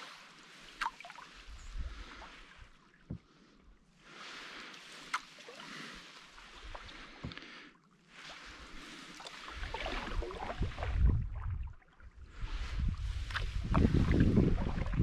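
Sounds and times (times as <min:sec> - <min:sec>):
water splashing around canoe: 0:00.0 - 0:15.0
wind buffeting microphone: 0:09.6 - 0:15.0.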